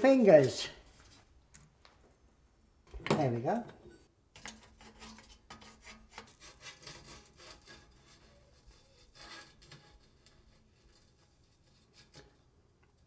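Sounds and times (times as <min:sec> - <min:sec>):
hand tools scraping tin plate: 0:03.8 - 0:13.0.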